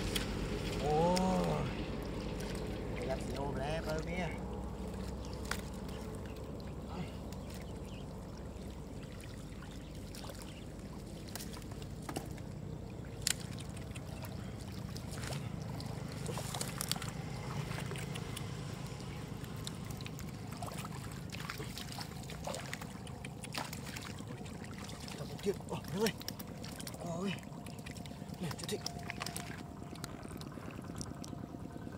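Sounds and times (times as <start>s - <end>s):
steady low rumble: 0.0s - 31.9s
hands splashing in shallow water: 8.6s - 30.4s.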